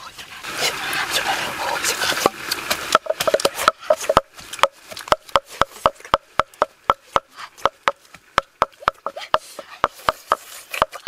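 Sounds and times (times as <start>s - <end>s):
pestle pounding in wooden mortar: 2.2s - 11.0s.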